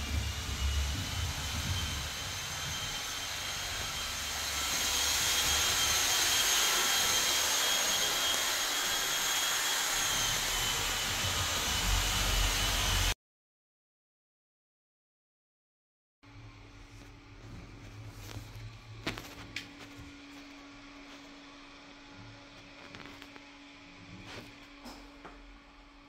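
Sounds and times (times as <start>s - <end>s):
small electric motor whine: 0.0s - 13.2s.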